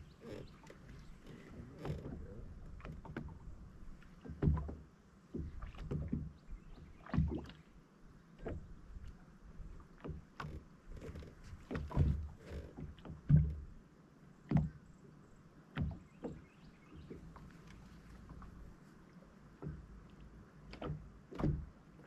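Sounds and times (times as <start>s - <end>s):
small waves slapping boat hull: 0.0s - 22.0s.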